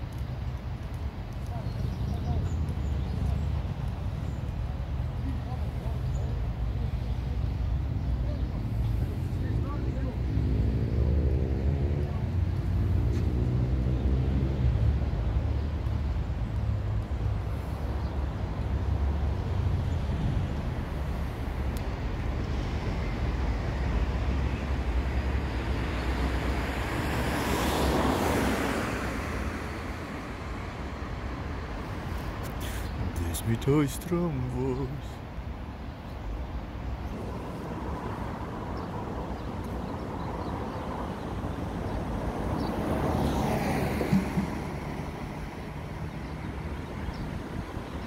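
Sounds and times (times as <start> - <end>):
road traffic rumble: 0.0 - 48.0
vehicle passing: 8.6 - 17.8, 19.0 - 35.2, 37.1 - 47.9
brief thump: 44.0 - 44.8.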